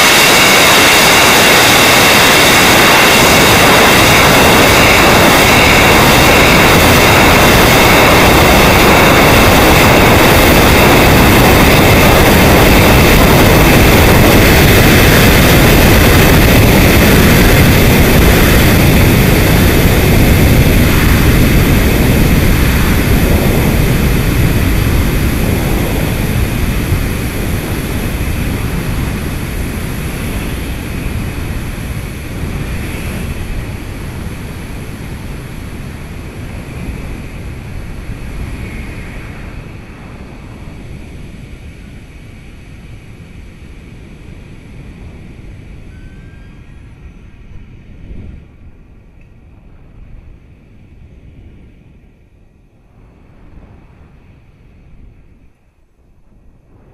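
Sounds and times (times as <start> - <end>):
rocket engine rushing noise: 0.0 - 42.1.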